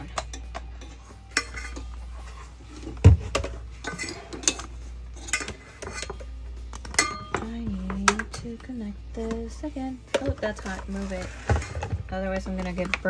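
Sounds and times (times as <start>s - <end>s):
metal utensils clattering: 0.0s - 8.6s.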